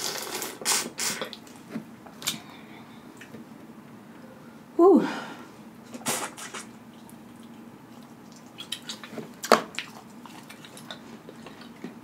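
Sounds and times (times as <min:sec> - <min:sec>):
wet mouth sounds of eating: 0:05.9 - 0:11.8.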